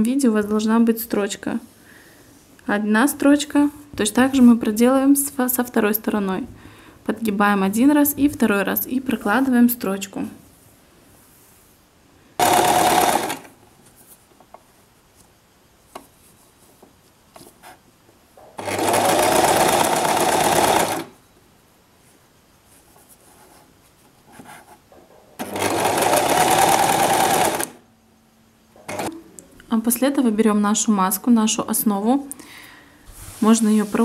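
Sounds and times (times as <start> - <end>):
sewing machine stitching: 12.4 - 13.5, 18.6 - 21.2, 25.4 - 27.8, 28.9 - 29.2.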